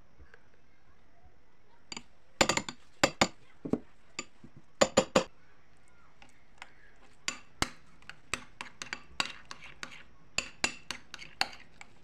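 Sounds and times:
spoon clinking ceramic bowl: 0:01.9 - 0:05.3, 0:06.6 - 0:12.0.

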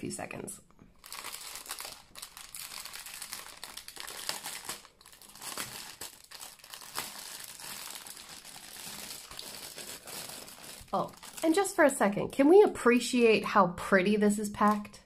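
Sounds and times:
plastic wrapping crinkling: 0:01.0 - 0:11.8.

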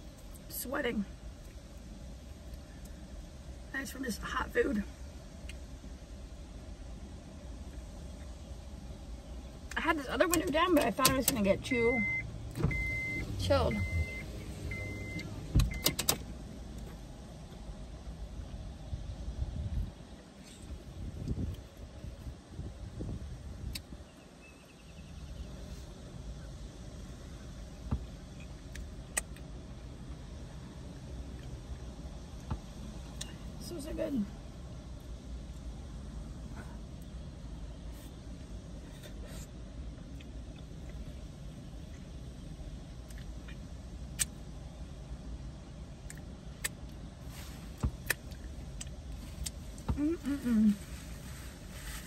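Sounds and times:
low vehicle rumble: 0:00.0 - 0:52.0
lip smacks: 0:47.9 - 0:49.9.

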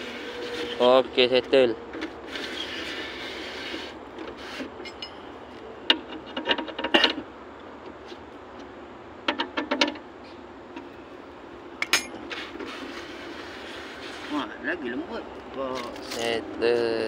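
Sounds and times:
metal parts and tools clinking: 0:04.8 - 0:05.2, 0:11.8 - 0:12.2.

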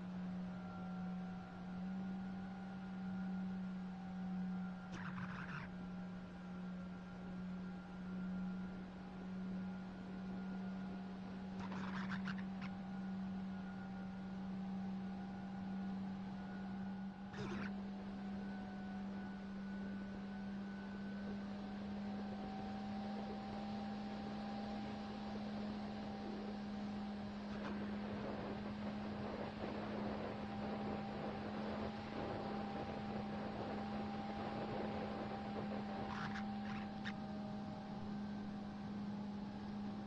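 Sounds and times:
model airplane motor humming: 0:04.9 - 0:06.0, 0:09.4 - 0:40.0.

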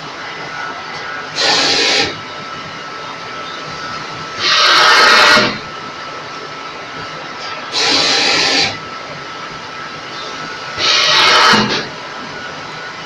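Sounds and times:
machine humming with faint whine: 0:00.0 - 0:13.0
loud hiss of air: 0:01.2 - 0:02.2, 0:04.0 - 0:05.8, 0:07.7 - 0:08.9, 0:10.4 - 0:12.8.

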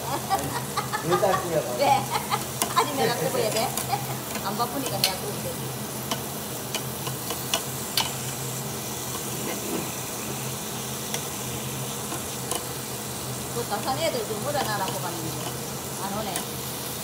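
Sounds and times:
meat sizzling on grill: 0:00.0 - 0:17.0
metal spatula clicking on grill: 0:02.4 - 0:05.4, 0:06.0 - 0:08.4, 0:11.0 - 0:11.3, 0:12.0 - 0:12.8, 0:13.8 - 0:16.6.

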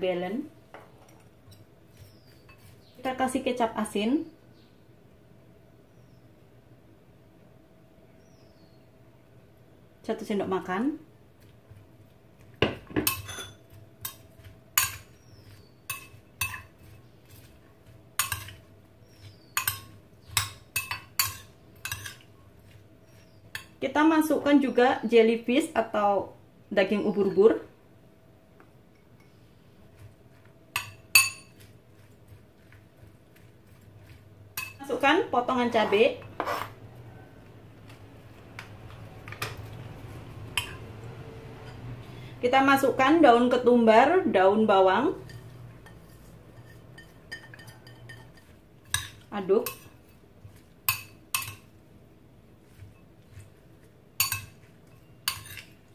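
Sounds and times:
cutlery clinking against bowl: 0:00.8 - 0:02.9, 0:12.6 - 0:17.6, 0:18.2 - 0:23.8, 0:30.0 - 0:34.8, 0:40.5 - 0:40.9, 0:45.2 - 0:51.7, 0:54.2 - 0:55.9
scrape on cutting board: 0:35.8 - 0:36.8.

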